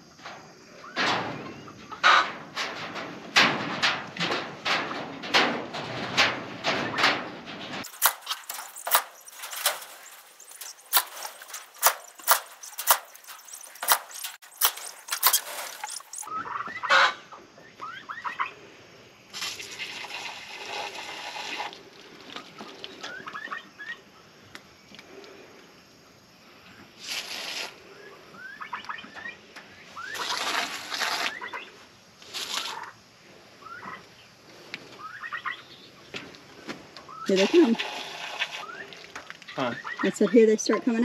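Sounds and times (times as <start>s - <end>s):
sharp irregular clicks and knocks: 2.0s - 16.3s
poultry calling: 8.1s - 18.6s, 34.8s - 35.9s, 39.5s - 40.4s
hiss: 27.0s - 27.9s.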